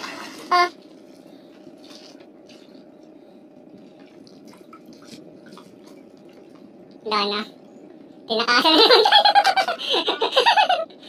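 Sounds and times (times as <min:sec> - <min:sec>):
water dripping and splashing: 0:03.7 - 0:07.0.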